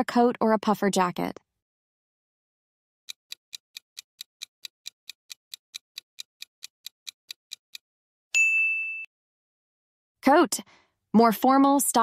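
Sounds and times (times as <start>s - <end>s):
clock ticking: 3.1s - 7.8s.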